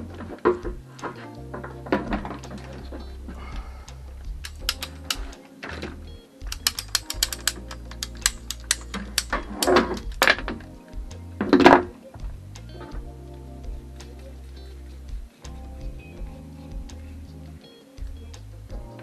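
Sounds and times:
handling knocks: 0.0s - 13.1s
background music: 0.0s - 19.0s
ratcheting pipe cutter clicking: 3.9s - 5.4s, 6.5s - 10.4s.

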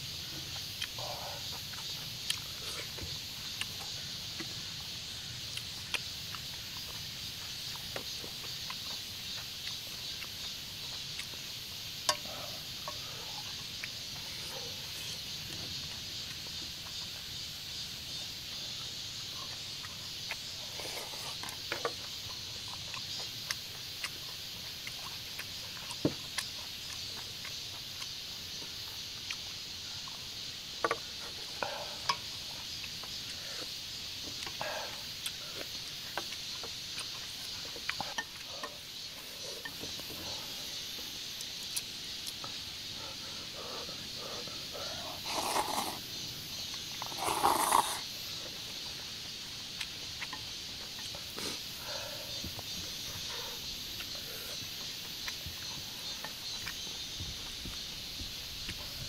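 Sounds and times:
insects chirring: 0.0s - 59.0s
chewing and slurping noodles: 18.0s - 40.2s, 44.2s - 48.9s.

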